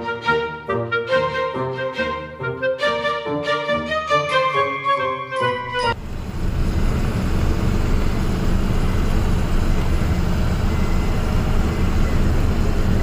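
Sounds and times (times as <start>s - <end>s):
truck engine drone: 5.6s - 13.0s
road noise: 5.9s - 13.0s.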